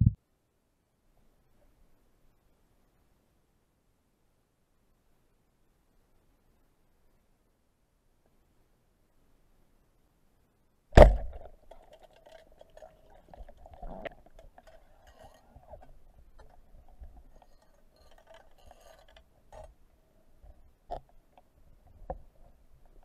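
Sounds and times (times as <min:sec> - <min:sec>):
speargun crack underwater: 0:11.0 - 0:15.3
faint underwater crackling: 0:11.0 - 0:23.0.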